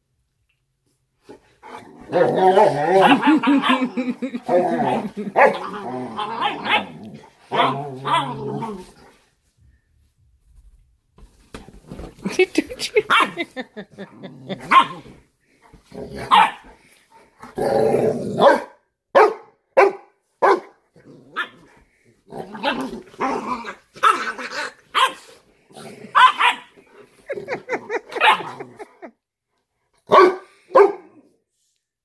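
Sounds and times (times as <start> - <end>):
dogs barking and yelping: 1.7 - 8.7, 12.9 - 15.2, 16.2 - 16.7, 23.6 - 25.4, 26.1 - 29.1
dog growling: 1.7 - 9.1, 13.9 - 15.2, 17.4 - 18.4, 21.0 - 24.9, 25.6 - 26.3.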